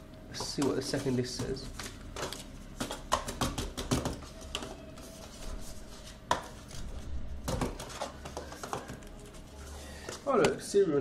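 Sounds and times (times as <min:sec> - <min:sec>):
cardboard and paper rustling clicks: 0:00.6 - 0:05.4.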